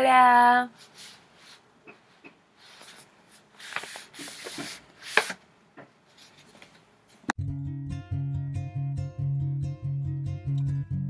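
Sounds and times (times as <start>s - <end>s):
book rustling and rubbing: 0.8s - 1.6s, 2.6s - 5.4s, 6.1s - 6.8s.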